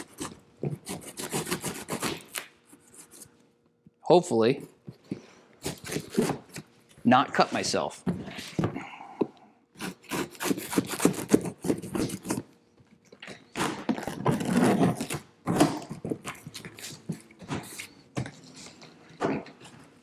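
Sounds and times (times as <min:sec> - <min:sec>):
knife cutting tape and cardboard: 0:00.0 - 0:03.2, 0:05.6 - 0:06.7, 0:09.8 - 0:12.5, 0:13.3 - 0:18.4.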